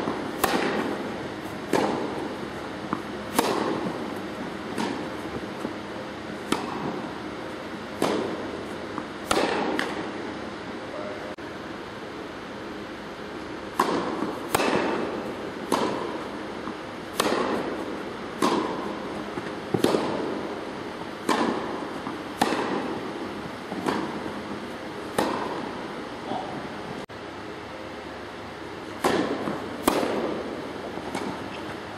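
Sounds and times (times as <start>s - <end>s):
tennis ball struck by rackets: 0.0s - 7.2s, 7.8s - 10.2s, 13.7s - 25.9s, 28.9s - 31.8s.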